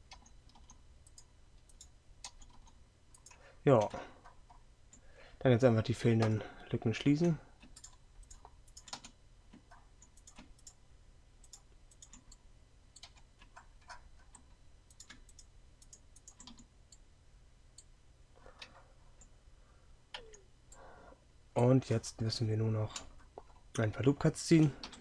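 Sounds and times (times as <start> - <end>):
keyboard and mouse clicks: 0.0 - 5.0, 7.6 - 10.8, 11.4 - 12.4, 13.0 - 17.0, 20.1 - 20.8
low steady hum: 0.0 - 25.0.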